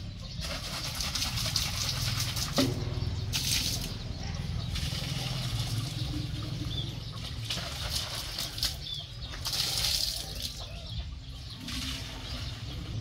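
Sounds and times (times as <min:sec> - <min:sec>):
water pouring into basin: 0:00.4 - 0:02.6, 0:04.8 - 0:08.8, 0:09.4 - 0:10.6
bird chirps: 0:01.8 - 0:13.0.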